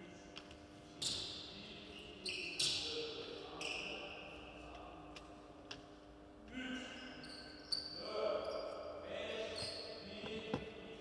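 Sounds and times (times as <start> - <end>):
basketball bouncing in a hall: 0.4 - 4.2.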